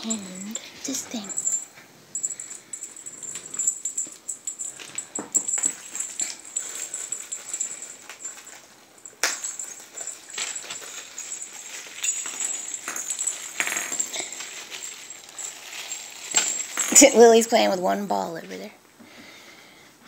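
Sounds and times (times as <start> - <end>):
paper and gift bag rustling: 9.4 - 17.5.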